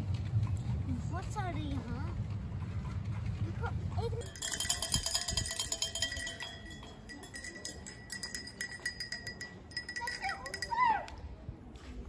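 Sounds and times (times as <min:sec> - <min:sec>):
small cowbells clanking: 0:04.2 - 0:10.9.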